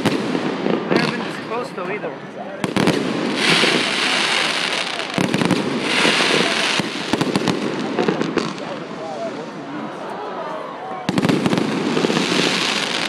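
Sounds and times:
fireworks bangs and pops: 0.0s - 1.7s, 2.6s - 9.1s, 11.1s - 13.0s
fireworks crackling: 0.0s - 2.0s, 2.6s - 9.7s, 11.1s - 13.0s.

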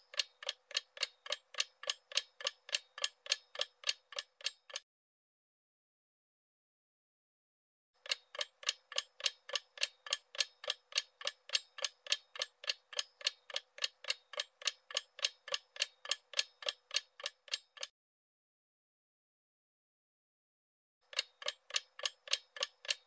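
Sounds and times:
clock ticking: 0.0s - 4.8s, 8.0s - 17.9s, 21.1s - 23.0s.

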